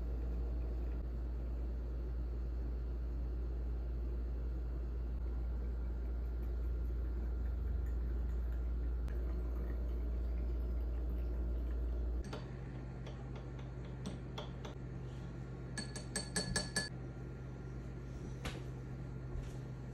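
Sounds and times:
steady low hum: 0:00.0 - 0:19.9
spoon clinking against glass: 0:15.8 - 0:16.9.

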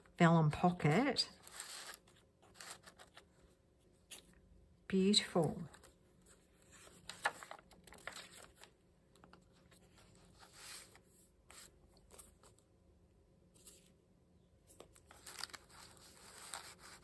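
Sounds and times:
paper pages rustling: 0:00.9 - 0:04.4, 0:05.5 - 0:12.7, 0:14.7 - 0:17.0.

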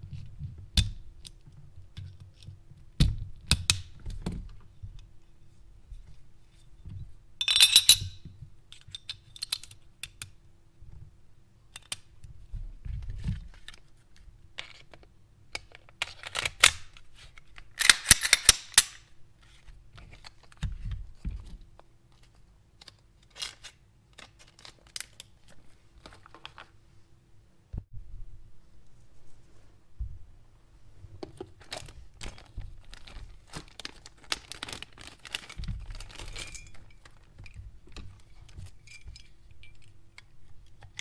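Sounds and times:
pistol parts clicking: 0:17.6 - 0:19.1.

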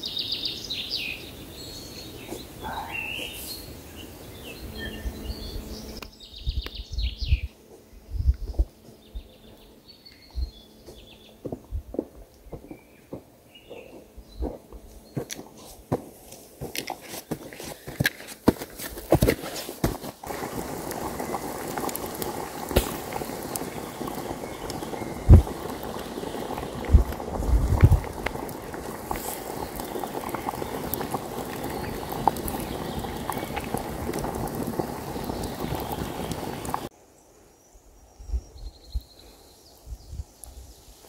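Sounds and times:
campfire crackling: 0:10.9 - 0:36.9
pot boiling: 0:15.3 - 0:36.9.

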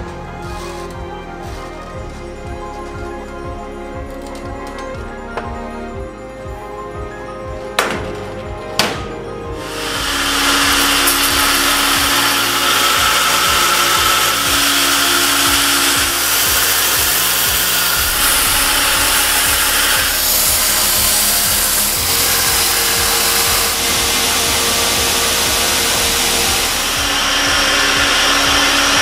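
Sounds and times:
belt grinder grinding steel: 0:09.6 - 0:29.0.

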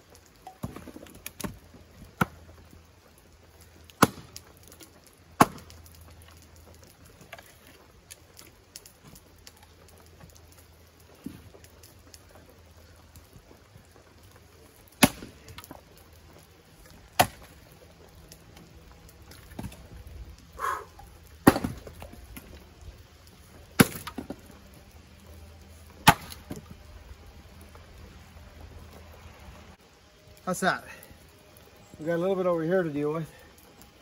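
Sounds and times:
axe chopping firewood: 0:00.4 - 0:02.4, 0:03.9 - 0:04.8, 0:05.4 - 0:05.8, 0:15.0 - 0:15.8, 0:17.1 - 0:17.5, 0:21.4 - 0:22.5, 0:23.8 - 0:24.4, 0:26.0 - 0:26.7.

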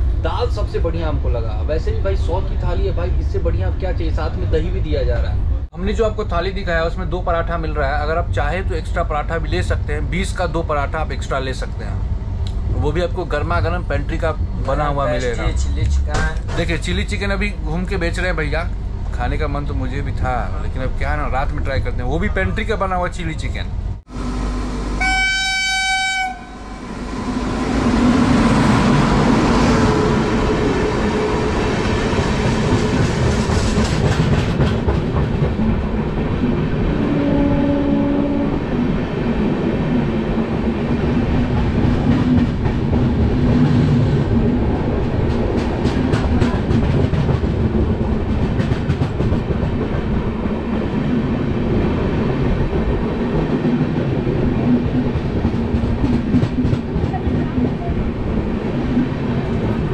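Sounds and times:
rail joints clacking: 0:06.3 - 0:23.8, 0:27.4 - 0:59.9
passing train roar: 0:23.6 - 0:59.9
locomotive horn: 0:24.9 - 0:26.9, 0:37.0 - 0:38.6.

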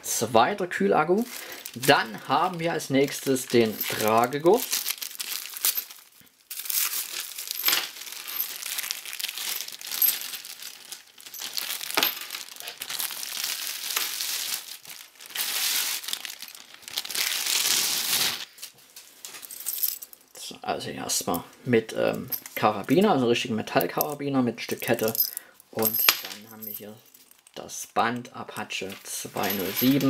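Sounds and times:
plastic wrapping crinkling: 0:01.1 - 0:20.0
metal chain clinking: 0:01.3 - 0:06.1, 0:06.7 - 0:13.0, 0:19.4 - 0:20.4, 0:24.8 - 0:27.6, 0:29.3 - 0:30.0.

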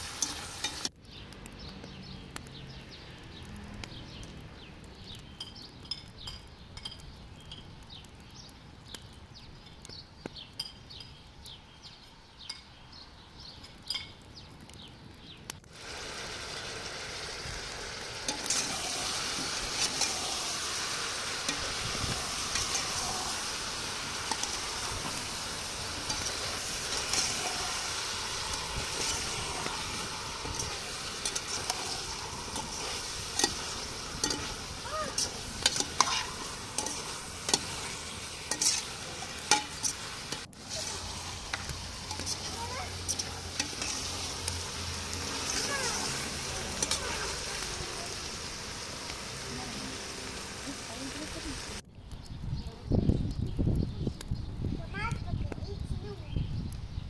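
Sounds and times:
loud steady sizzle: 0:00.0 - 0:57.0.

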